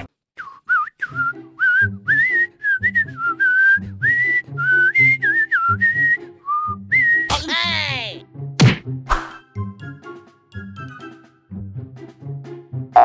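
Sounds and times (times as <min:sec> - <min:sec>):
whistled comedy music: 0:00.4 - 0:07.4, 0:09.1 - 0:11.5.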